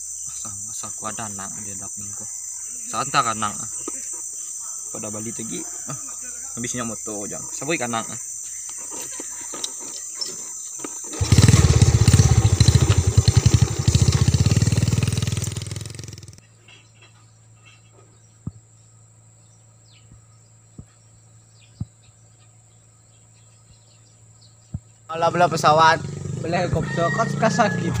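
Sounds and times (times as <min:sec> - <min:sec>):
insects chirring: 0:00.0 - 0:28.0
small motorcycle engine passing: 0:11.0 - 0:16.5, 0:25.2 - 0:28.0.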